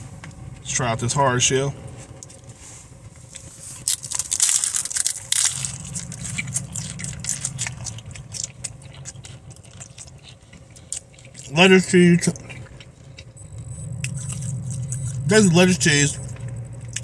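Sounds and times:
taco shell crunching: 3.2s - 17.0s.

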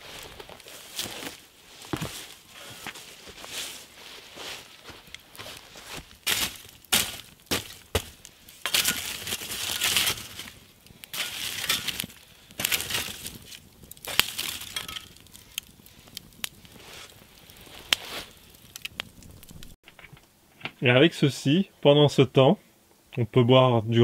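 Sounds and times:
embers crunching and crumbling: 0.0s - 20.0s
charred wood knocking and clinking: 6.0s - 16.6s, 17.9s - 20.8s.

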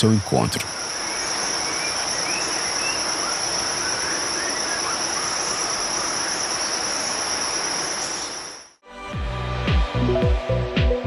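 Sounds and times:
constant hiss: 0.0s - 8.7s
insects chirring: 0.0s - 8.8s.

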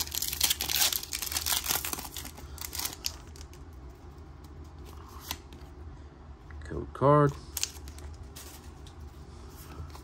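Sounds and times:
foil wrapper crinkling: 0.0s - 3.6s.

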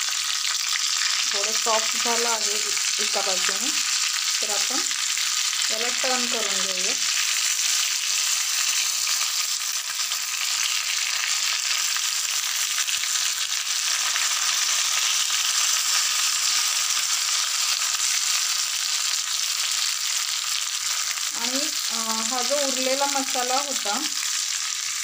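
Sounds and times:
food sizzling in hot oil: 0.0s - 25.0s.

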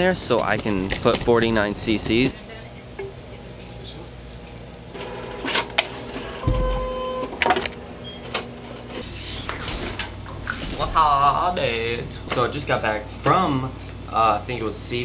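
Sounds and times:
printer mechanical hum: 4.9s - 13.7s
held tone: 6.4s - 7.3s.

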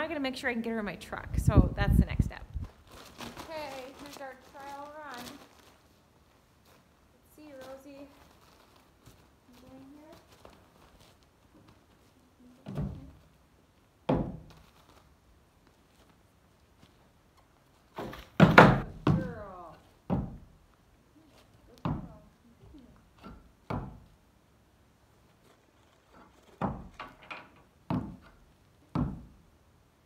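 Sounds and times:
hooves on wooden ramp: 17.8s - 20.6s, 21.4s - 24.2s, 25.3s - 29.4s.

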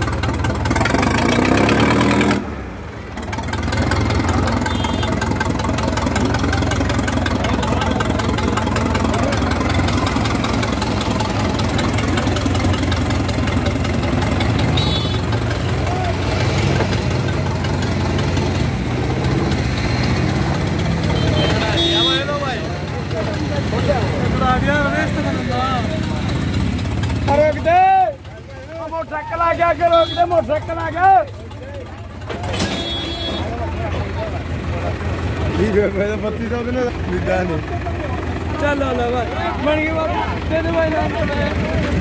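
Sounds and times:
crowd voices: 0.0s - 42.0s
tractor diesel engine running: 0.0s - 42.0s.

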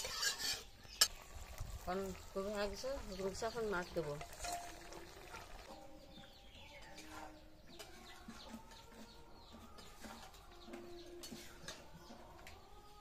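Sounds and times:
birds chirping and whistling: 5.7s - 13.0s.

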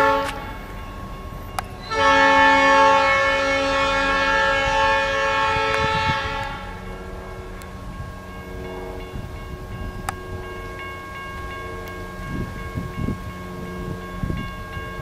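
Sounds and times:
locomotive air horn blast: 0.0s - 0.7s, 1.8s - 7.6s
faint steady ringing: 0.0s - 3.3s, 6.7s - 15.0s
low rumble of train: 0.0s - 15.0s.

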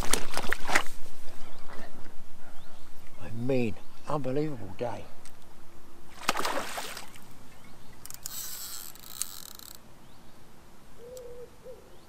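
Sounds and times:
water splashing: 0.0s - 1.0s, 6.1s - 7.4s
fishing reel click: 8.0s - 9.8s.

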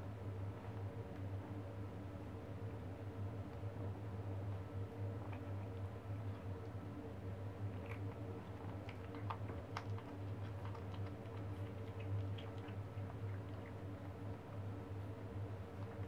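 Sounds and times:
low steady hum: 0.0s - 16.0s
kitten chewing clicks: 5.2s - 6.8s, 7.6s - 14.7s, 15.7s - 16.0s.

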